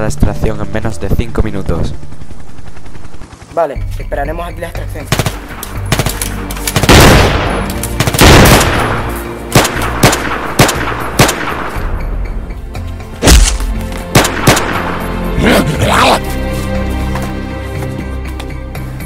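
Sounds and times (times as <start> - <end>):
background music: 0.0 - 19.0
rapid gunfire bursts: 5.1 - 8.9, 9.5 - 11.6, 14.1 - 14.8
gunshots: 5.1 - 11.9, 13.2 - 15.1.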